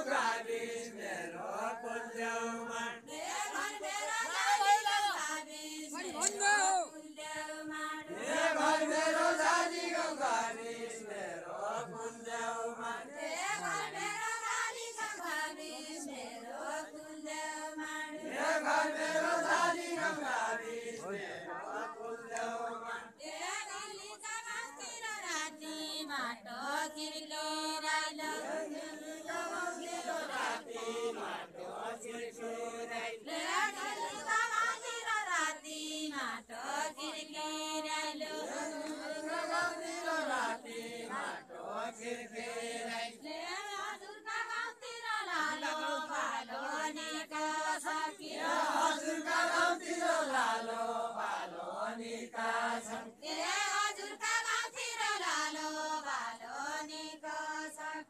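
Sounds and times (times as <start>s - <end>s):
group singing folk song in unison: 0.0s - 58.0s.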